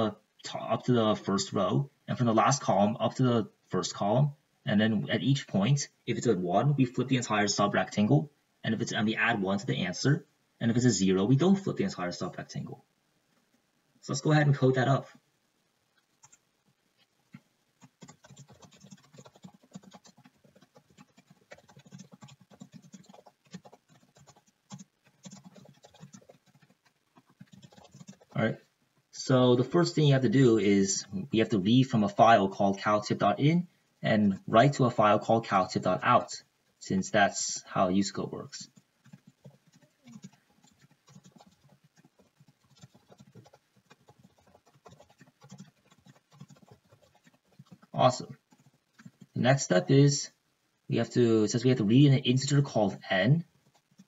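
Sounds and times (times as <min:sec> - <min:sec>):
typing on computer keyboard: 0:16.2 - 0:16.4, 0:17.8 - 0:28.4, 0:38.7 - 0:49.4, 0:53.5 - 0:54.0.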